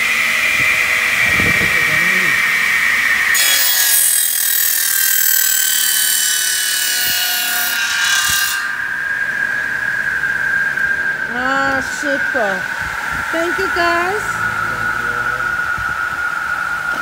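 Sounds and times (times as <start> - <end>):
power saw motor whining: 0.0 - 17.0
saw blade cutting plastic pipe: 3.3 - 8.9.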